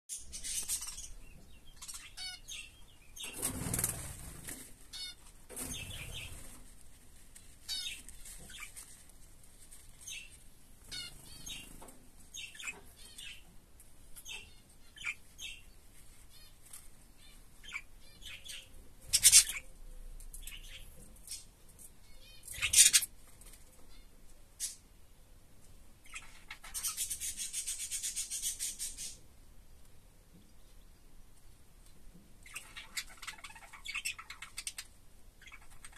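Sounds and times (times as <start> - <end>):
bird chicks chirping: 0.1 - 25.0, 26.0 - 29.2, 30.3 - 35.9
rustling: 3.2 - 13.2, 15.7 - 17.4.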